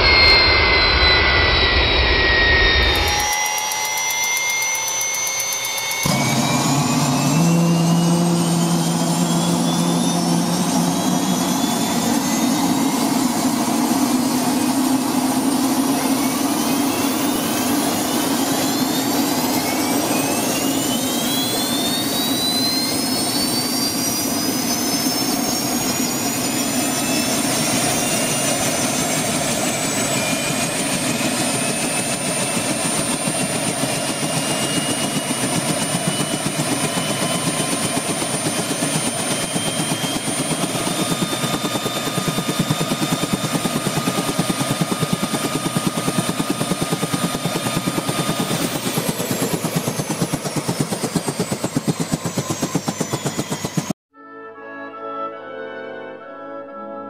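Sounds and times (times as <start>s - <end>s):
rush of engine noise: 0.0s - 54.0s
turbine engine whine: 0.0s - 54.0s.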